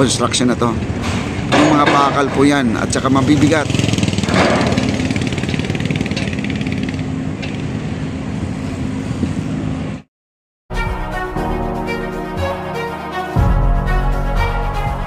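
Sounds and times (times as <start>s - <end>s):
engine humming: 0.6s - 10.0s
music: 10.7s - 15.0s.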